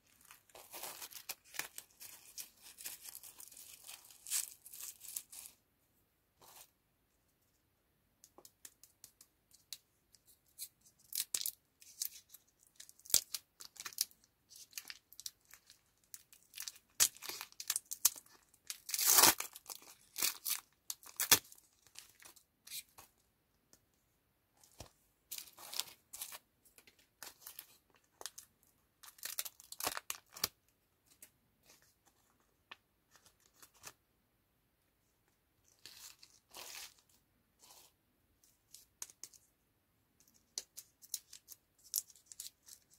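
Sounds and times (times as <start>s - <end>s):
paper wrapper crinkling and tearing: 0.0s - 5.6s, 11.0s - 22.9s, 27.2s - 30.6s.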